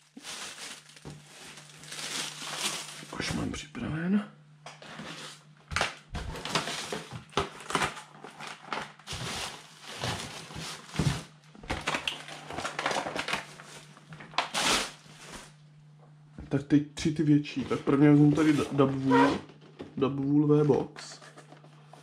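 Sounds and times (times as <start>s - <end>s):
plastic packaging crinkling: 0.0s - 3.3s, 5.1s - 15.6s
faint low hum: 0.0s - 22.0s.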